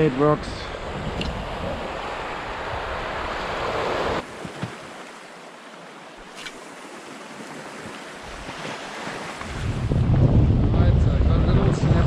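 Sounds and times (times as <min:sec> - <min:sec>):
wind rumbling on microphone: 0:00.0 - 0:04.2, 0:08.2 - 0:12.0.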